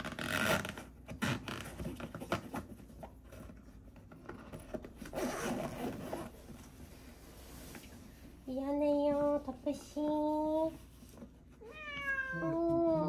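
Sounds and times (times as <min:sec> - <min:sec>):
zipper being pulled: 0:00.0 - 0:01.6, 0:05.0 - 0:06.4
fabric scraping and rustling: 0:04.7 - 0:08.5.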